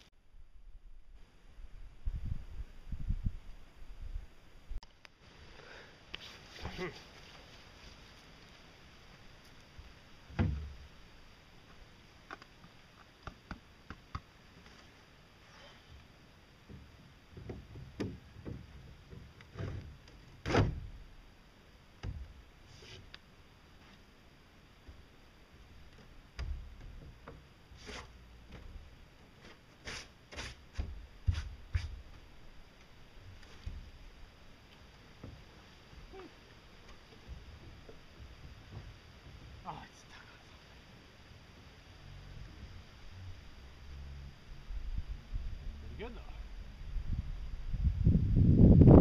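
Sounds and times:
heavy thump: 0:10.3 - 0:10.8.

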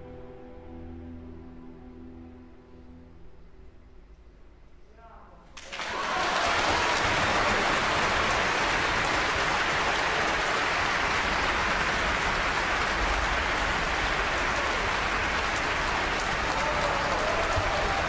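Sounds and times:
audience applause: 0:05.6 - 0:18.0.

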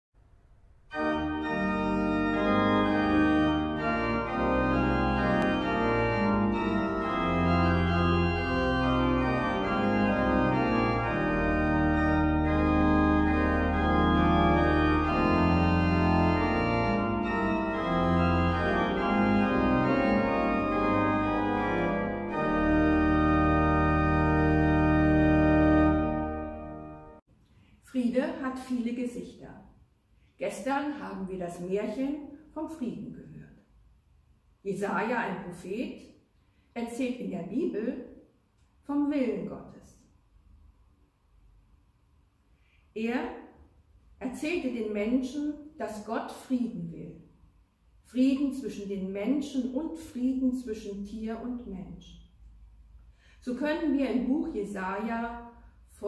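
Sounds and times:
pipe organ chords: 0:00.9 - 0:27.2.

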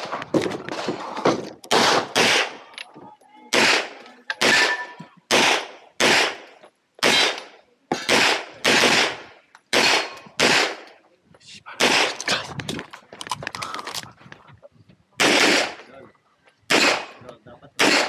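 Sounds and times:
pistol shots in pairs: 0:01.7 - 0:02.6, 0:03.5 - 0:11.0, 0:11.8 - 0:12.2, 0:15.2 - 0:15.8, 0:16.7 - 0:17.2, 0:17.8 - 0:18.0.

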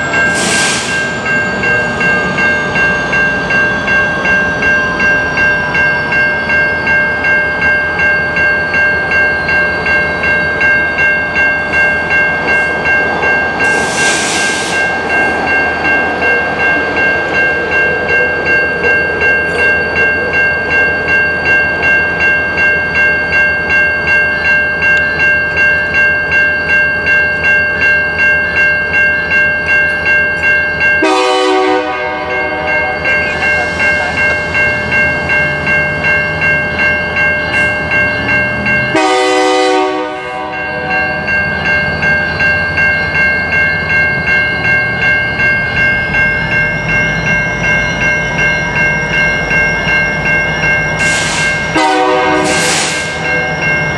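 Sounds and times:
crossing bell ringing: 0:00.0 - 0:53.9
locomotive horn blasts: 0:31.0 - 0:33.0, 0:38.9 - 0:41.0, 0:51.2 - 0:53.1.

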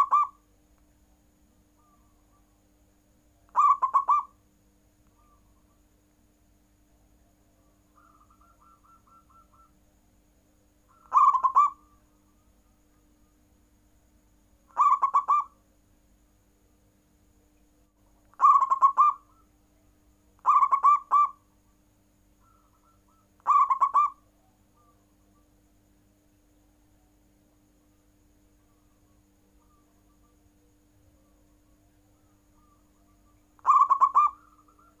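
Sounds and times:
dove cooing: 0:00.0 - 0:00.4, 0:03.5 - 0:04.4, 0:07.6 - 0:09.8, 0:10.9 - 0:12.4, 0:14.7 - 0:15.6, 0:18.3 - 0:19.5, 0:20.4 - 0:21.4, 0:22.4 - 0:25.4, 0:32.2 - 0:35.0.

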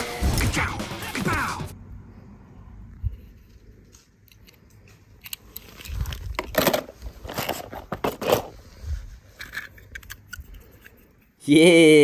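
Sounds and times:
plastic toys scraping and clacking: 0:04.3 - 0:11.3.

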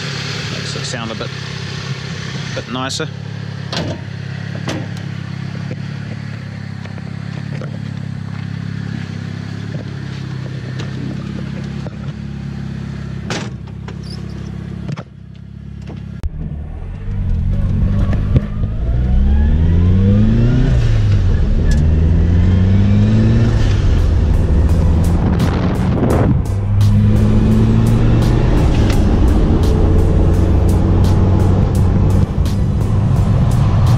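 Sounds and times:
car engine idling: 0:00.0 - 0:19.3, 0:20.9 - 0:33.9
car accelerating revs: 0:16.4 - 0:33.9.

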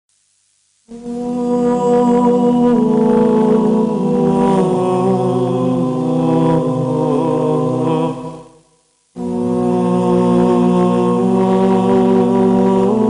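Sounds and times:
low drone: 0:00.9 - 0:08.5, 0:09.2 - 0:13.0
voices chanting long notes: 0:00.9 - 0:13.0.

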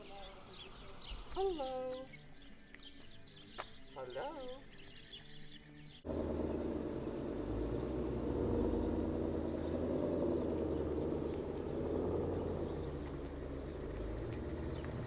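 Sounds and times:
car engine rumbling: 0:06.0 - 0:15.0.

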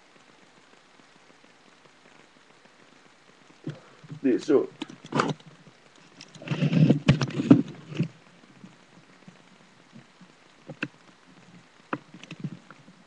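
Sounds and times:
webcam handling knocks and rubbing: 0:04.8 - 0:05.4, 0:06.3 - 0:08.1.

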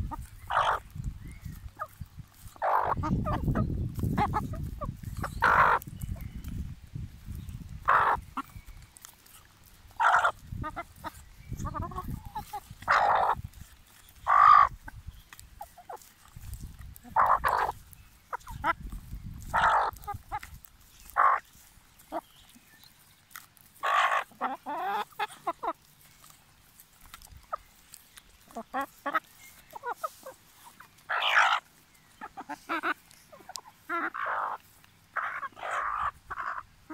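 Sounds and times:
chickens calling: 0:00.0 - 0:36.9.

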